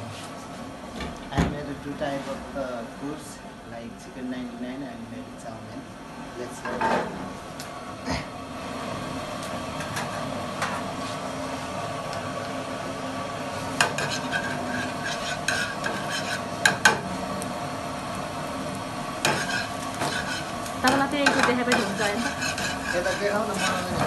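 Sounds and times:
food sizzling in oil: 0:12.6 - 0:24.0
metal utensils scraping a pan: 0:13.8 - 0:17.0, 0:19.2 - 0:24.0.

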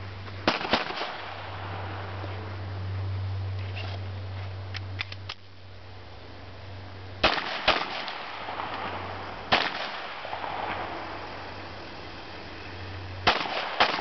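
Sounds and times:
pistol shots: 0:00.4 - 0:01.4, 0:07.2 - 0:10.8, 0:13.2 - 0:14.0.

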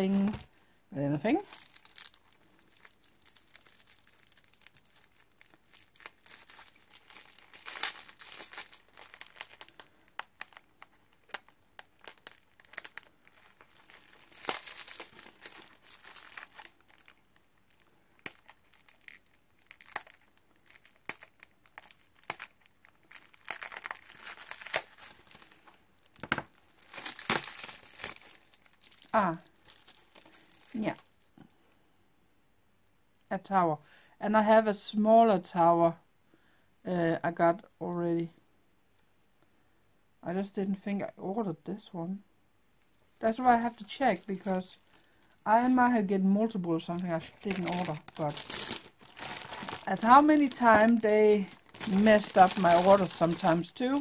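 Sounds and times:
bubble wrap crinkling: 0:00.0 - 0:31.5, 0:42.8 - 0:54.0.

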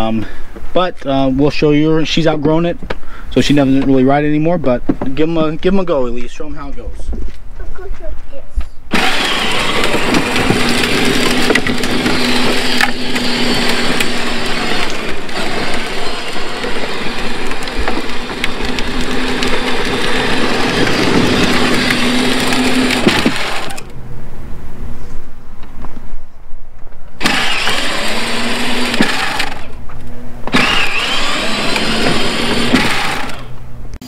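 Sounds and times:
plastic tires crunching on concrete: 0:00.2 - 0:24.0, 0:26.7 - 0:33.5
electric motor humming: 0:08.9 - 0:24.0, 0:27.2 - 0:34.0.

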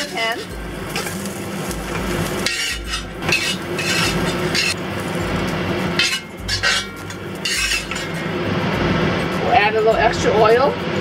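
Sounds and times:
metal spatula scraping wok: 0:00.0 - 0:08.4.

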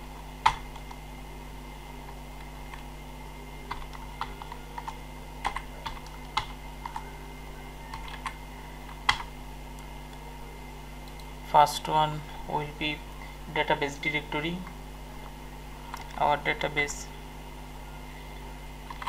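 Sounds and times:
faint electrical hum: 0:00.0 - 0:19.0
keyboard typing: 0:00.4 - 0:01.0, 0:03.6 - 0:07.1, 0:07.9 - 0:09.3, 0:11.0 - 0:11.3.

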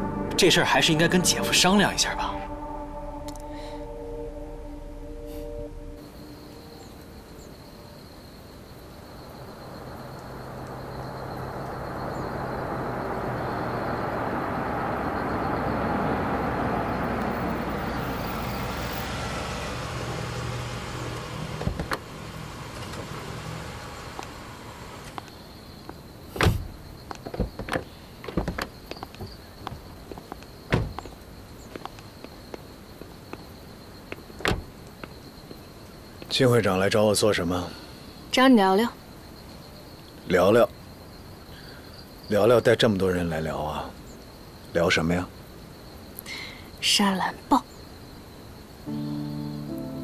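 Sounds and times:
car engine and tyres: 0:00.0 - 0:36.7, 0:48.4 - 0:50.0
car door slamming: 0:20.6 - 0:25.2, 0:26.4 - 0:29.8, 0:30.7 - 0:31.1, 0:34.4 - 0:34.8
car door clicks: 0:21.2 - 0:22.1, 0:26.4 - 0:29.4.

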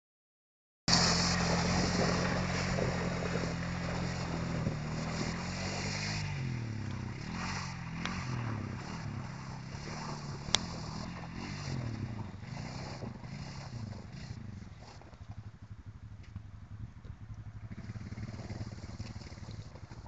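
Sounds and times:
tyres splashing: 0:00.9 - 0:12.6
atv engine revving: 0:00.9 - 0:20.0.

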